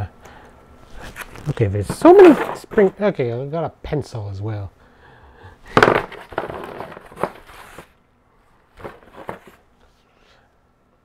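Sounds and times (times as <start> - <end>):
packaging rustling and crinkling: 5.7 - 7.9, 8.8 - 9.6.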